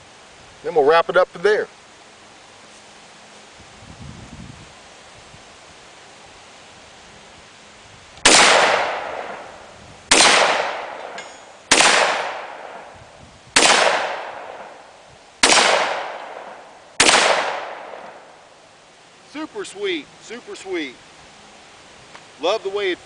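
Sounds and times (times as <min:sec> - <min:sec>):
shotgun shots: 0:08.2 - 0:09.5, 0:10.1 - 0:12.9, 0:13.6 - 0:14.8, 0:15.4 - 0:18.3.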